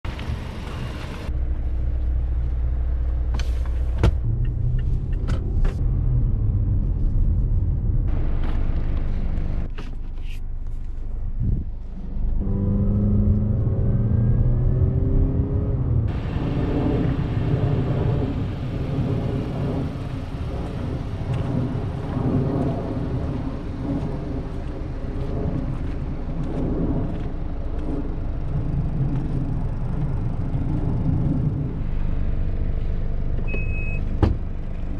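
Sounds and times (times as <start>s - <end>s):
road and tyre rumble: 0.0s - 34.9s
car engine running: 0.1s - 34.9s.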